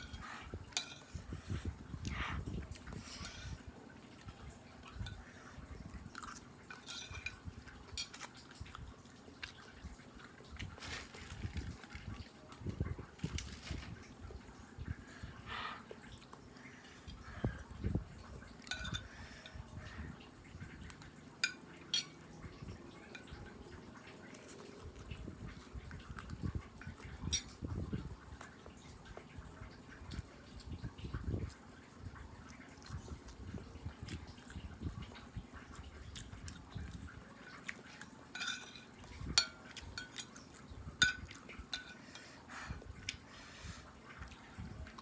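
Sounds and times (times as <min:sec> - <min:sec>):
metal spoon clinking on plate: 0:00.0 - 0:01.2, 0:06.7 - 0:07.4, 0:18.6 - 0:19.2, 0:38.3 - 0:40.4, 0:41.0 - 0:42.3
slurping and chewing noodles: 0:00.0 - 0:12.3, 0:32.4 - 0:45.0.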